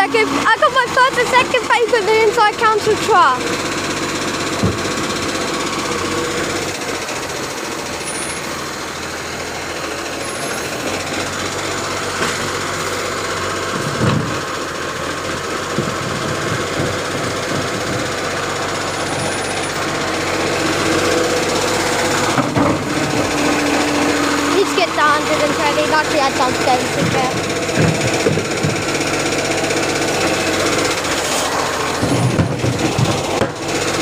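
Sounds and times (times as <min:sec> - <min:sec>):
garbage truck diesel engine running: 0:00.0 - 0:34.0
thump: 0:04.6 - 0:04.8.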